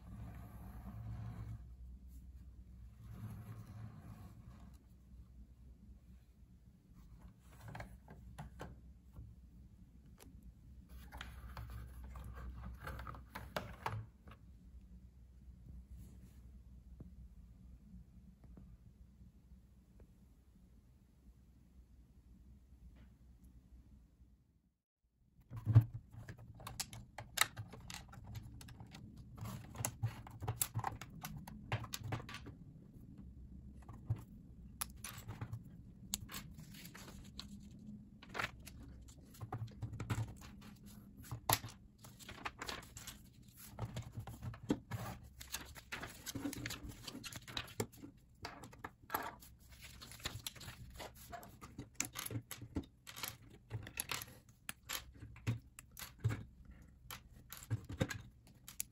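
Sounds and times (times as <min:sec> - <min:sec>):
loose plastic pieces rattling: 0:45.5 - 0:58.9.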